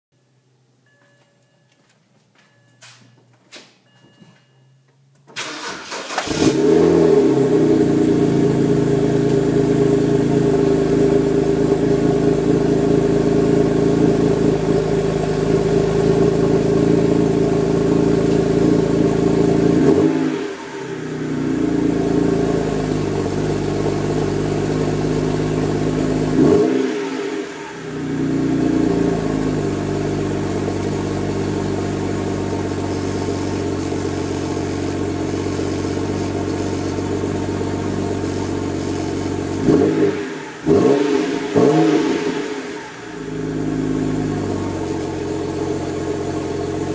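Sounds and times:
car starter cranking: 5.2s - 7.0s
car engine idling: 5.4s - 46.9s.

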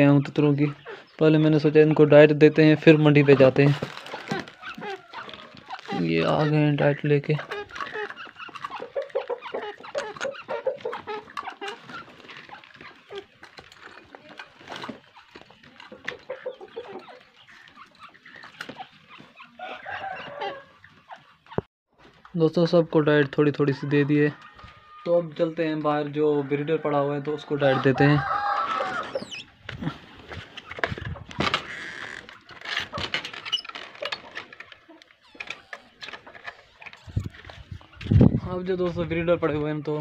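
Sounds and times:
birds clucking and calling: 0.0s - 22.2s, 22.8s - 40.0s
wire cages clicking and rattling: 1.3s - 22.3s, 30.3s - 39.0s.

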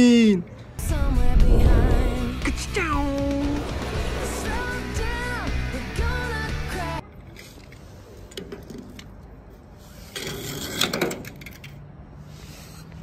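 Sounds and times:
music: 0.8s - 7.0s.

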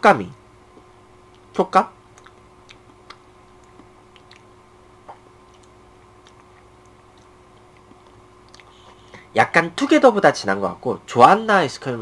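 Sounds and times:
low room hum: 0.0s - 12.0s
mouth clicks and lip smacks: 2.1s - 8.8s.

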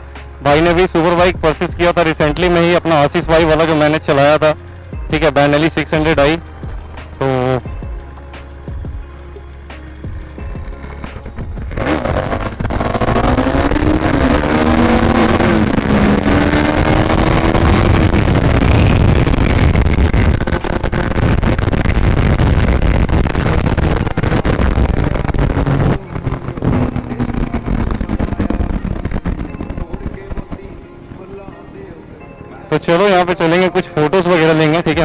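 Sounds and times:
motorcycle engine accelerating: 9.8s - 31.1s
wind rush on microphone: 11.1s - 30.9s.

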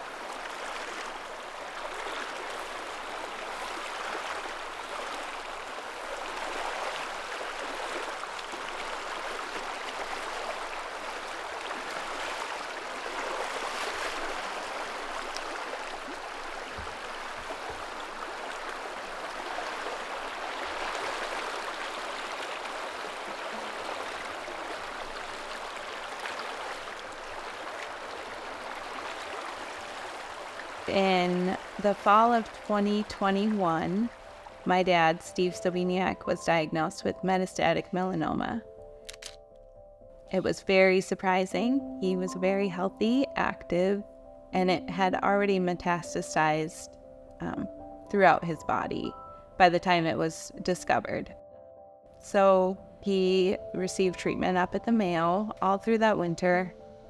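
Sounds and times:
stream flowing over rocks: 0.0s - 34.7s.

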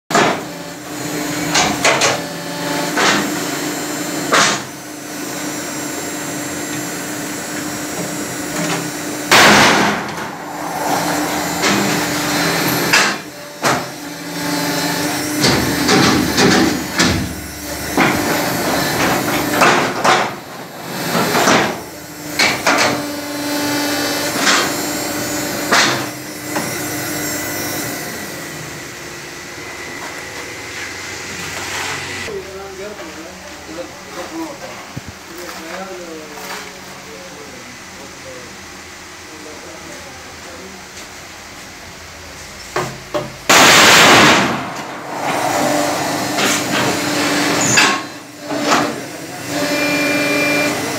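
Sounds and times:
machine motor hum: 5.4s - 20.0s, 43.7s - 50.9s
loud machine rattling: 7.9s - 24.8s, 43.5s - 49.8s.

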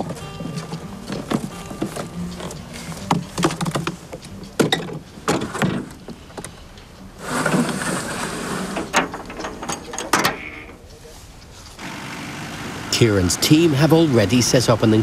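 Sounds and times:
rough scraping: 7.2s - 9.6s.

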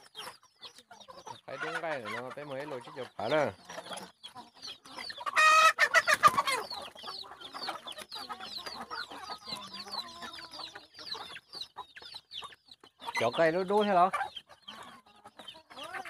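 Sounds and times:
chickens clucking: 0.0s - 16.0s.

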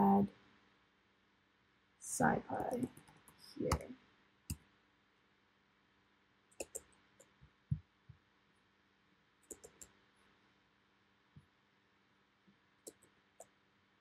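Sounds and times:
keyboard and mouse clicks: 6.6s - 7.4s, 9.4s - 9.9s, 12.8s - 13.5s.

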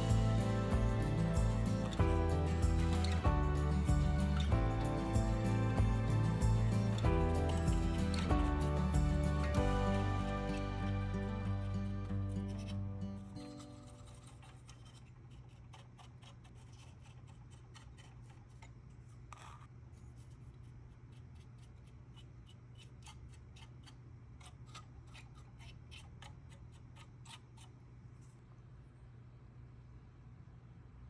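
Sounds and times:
low steady hum: 0.0s - 31.0s
paintbrush scraping on plastic: 5.4s - 28.4s.

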